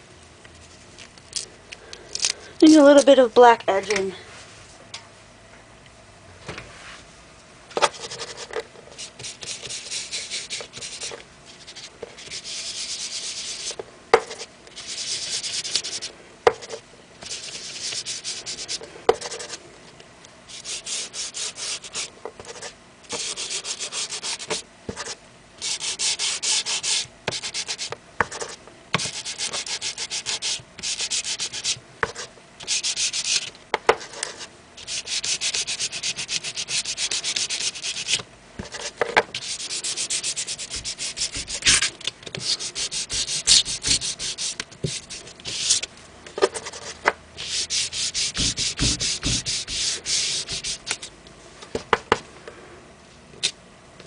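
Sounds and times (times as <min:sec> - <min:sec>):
foam tool scrubbing paper: 0:20.5 - 0:22.1, 0:34.8 - 0:38.2, 0:39.3 - 0:45.8, 0:47.4 - 0:50.9.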